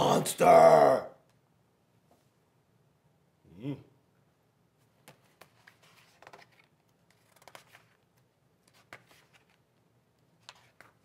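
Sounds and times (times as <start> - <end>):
book pages rustling: 4.8 - 11.0.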